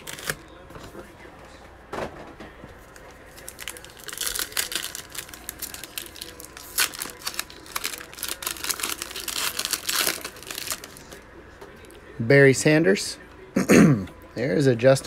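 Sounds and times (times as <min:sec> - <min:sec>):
foil wrapper tearing and crinkling: 0:00.0 - 0:00.4, 0:03.3 - 0:11.2.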